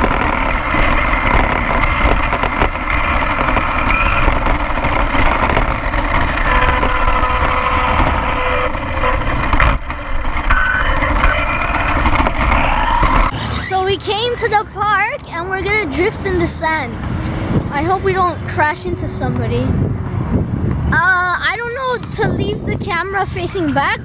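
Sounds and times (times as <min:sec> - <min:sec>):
electric motor whine: 0:00.0 - 0:13.3
road and wind rumble: 0:00.0 - 0:24.0.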